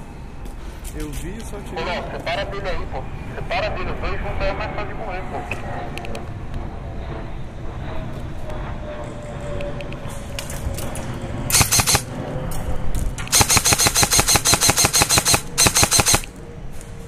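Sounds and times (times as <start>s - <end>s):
airsoft rifle automatic bursts: 11.5s - 12.1s, 13.3s - 16.3s.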